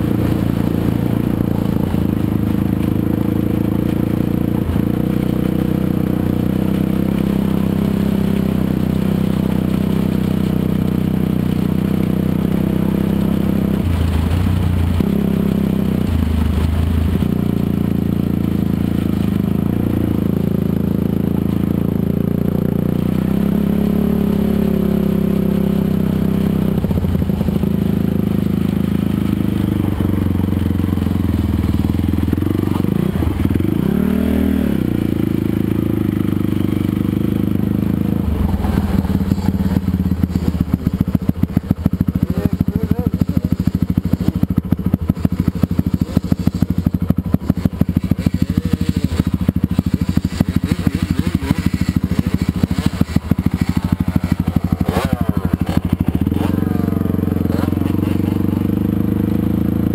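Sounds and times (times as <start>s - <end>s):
dirt bike engine running: 0.0s - 59.9s
gravel scraping and rattling: 0.0s - 59.9s.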